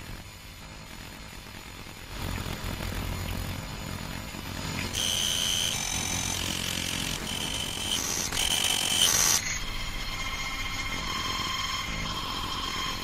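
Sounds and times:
glitchy electronic alert tones: 4.9s - 9.6s
buzzy electronic chord: 4.9s - 13.0s
high two-pitch beeping tone: 5.0s - 9.4s.

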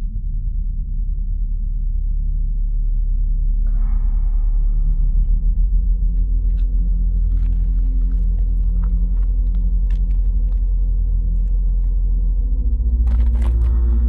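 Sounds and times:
deep low rumble: 0.0s - 14.0s
faint ticks and crackles: 5.1s - 12.2s.

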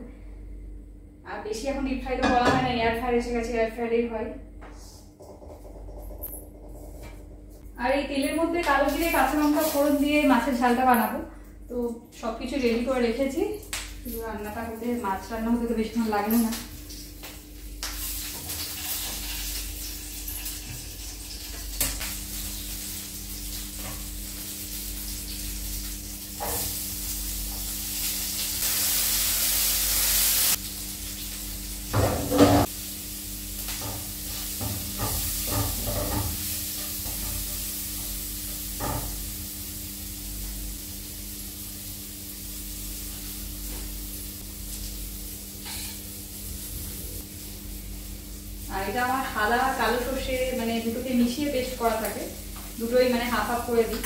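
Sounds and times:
steady low hum: 0.0s - 18.4s
seeds sizzling in hot oil: 8.8s - 10.5s, 16.1s - 52.8s.

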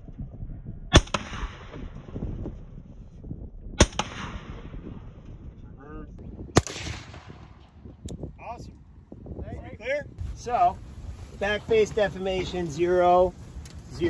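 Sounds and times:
rifle shots: 0.9s - 2.2s, 3.8s - 5.2s, 6.5s - 7.8s
sharp crack of bullet impact: 0.9s - 2.4s, 3.8s - 5.2s, 6.5s - 7.7s.

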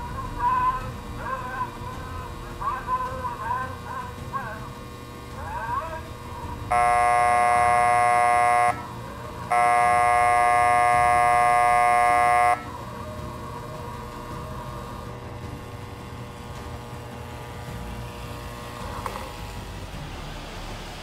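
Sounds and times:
model locomotive horn blasts: 6.7s - 12.8s.

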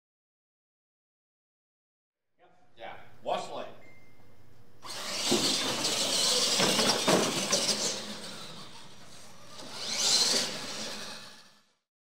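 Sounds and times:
toy truck motor whine: 4.8s - 11.9s
tyres scrubbing on hard floor: 5.0s - 8.2s.

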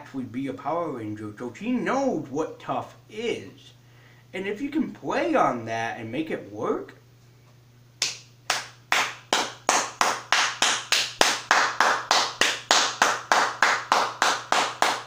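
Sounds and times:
person clapping hands: 8.0s - 15.0s.

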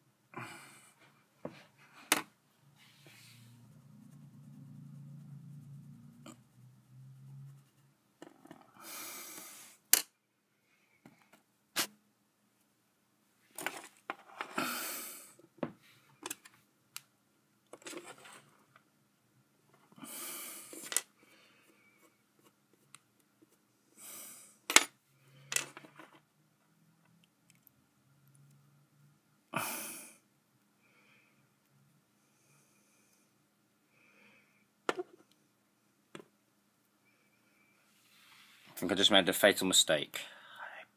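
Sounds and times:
faint low hum: 0.0s - 9.4s.

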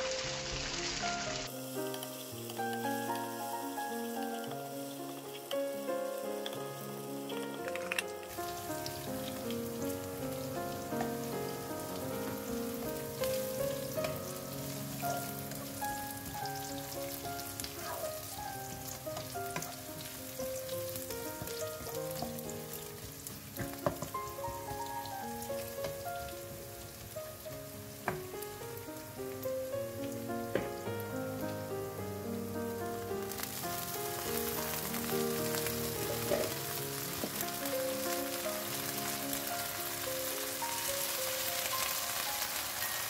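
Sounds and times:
food sizzling in oil: 0.0s - 43.0s
soft background music: 0.0s - 43.0s
wooden spatula scraping a wok: 34.4s - 37.6s.

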